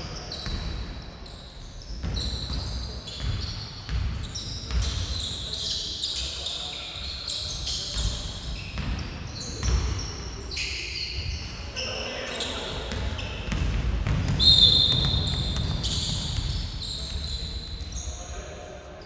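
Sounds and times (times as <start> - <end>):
sneakers squeaking on court: 0.0 - 18.3
basketball bouncing on wooden floor: 12.9 - 17.2.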